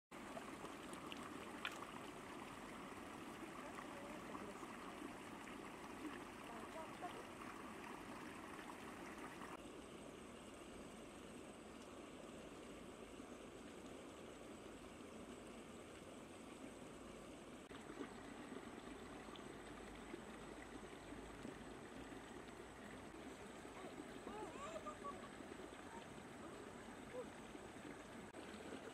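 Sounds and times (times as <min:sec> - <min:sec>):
stream trickling over stones: 0:00.1 - 0:28.9.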